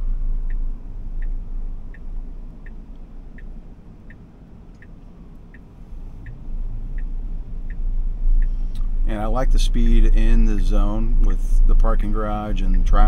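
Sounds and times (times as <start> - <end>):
car indicator ticking: 0.4 - 8.9.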